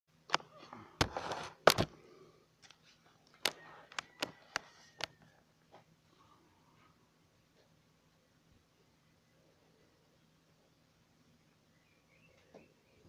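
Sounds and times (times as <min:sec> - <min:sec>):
phone handling rubbing: 0:00.3 - 0:01.9
sharp clicks and knocks: 0:01.0 - 0:01.9.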